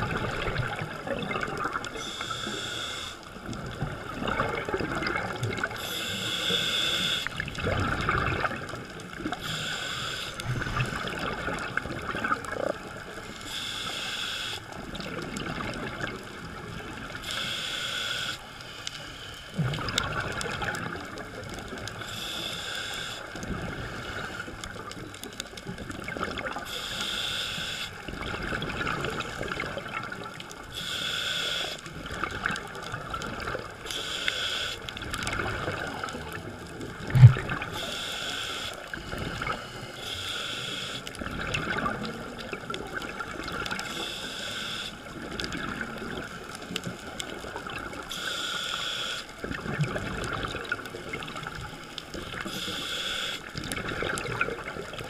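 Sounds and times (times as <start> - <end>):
gurgling bubbles: 0.0 - 13.4, 14.7 - 17.4, 19.5 - 26.8, 27.9 - 30.9, 31.8 - 34.1, 34.8 - 40.0, 41.1 - 44.4, 45.0 - 48.2, 49.4 - 55.0
regulator breathing hiss: 2.0 - 3.4, 5.8 - 7.4, 9.4 - 11.2, 13.4 - 14.8, 17.2 - 19.5, 22.0 - 24.5, 26.6 - 28.0, 30.7 - 31.9, 33.8 - 34.9, 37.7 - 41.2, 43.8 - 45.0, 48.1 - 49.4, 52.4 - 53.5.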